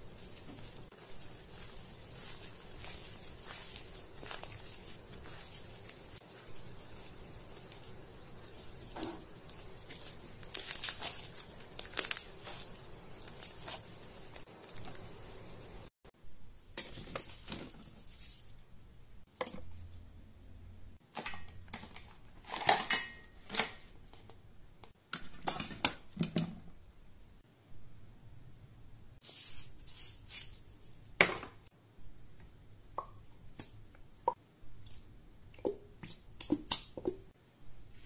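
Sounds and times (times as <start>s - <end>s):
slime squeezing with crackles: 0.0s - 15.7s.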